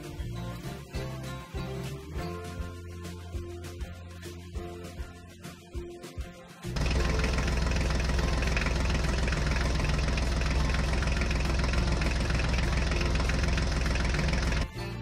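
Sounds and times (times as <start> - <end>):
tractor engine idling: 6.8 - 14.7.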